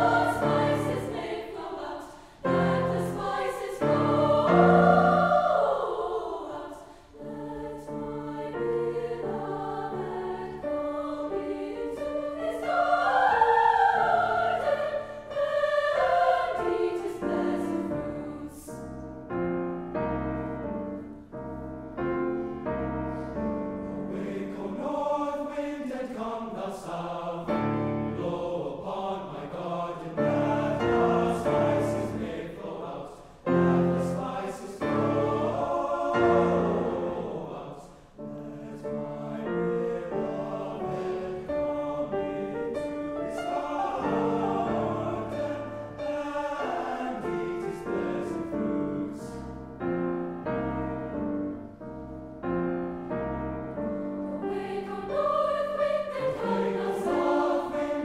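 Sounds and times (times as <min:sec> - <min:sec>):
piano accompaniment: 0:00.0 - 0:01.7, 0:02.5 - 0:06.6, 0:07.3 - 0:24.6, 0:30.2 - 0:32.5, 0:38.2 - 0:58.0
mixed choir singing in harmony: 0:00.0 - 0:21.2, 0:22.0 - 0:51.7, 0:52.4 - 0:58.0.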